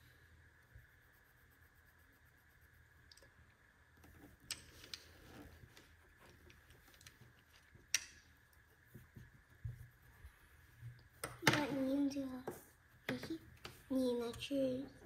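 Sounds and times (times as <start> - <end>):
marker strokes on paper: 0.0 - 3.1, 8.3 - 14.9.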